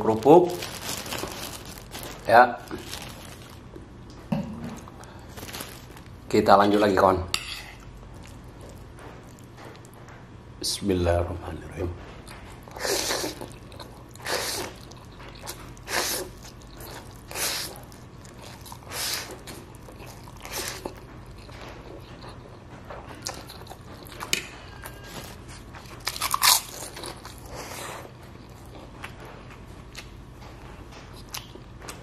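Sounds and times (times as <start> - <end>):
chewing with crunchy bites: 7.8 - 10.0, 12.2 - 32.0
slurping noodles: 12.7 - 13.5, 15.8 - 16.4.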